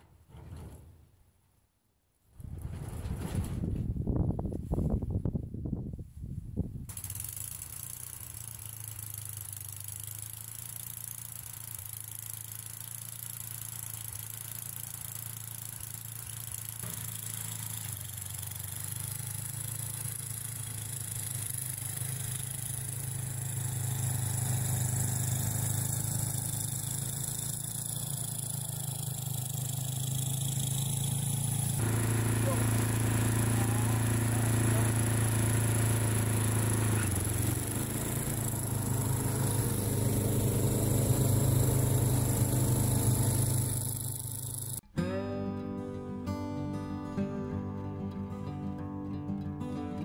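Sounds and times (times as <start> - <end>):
snowblower engine running: 6.9 - 44.8.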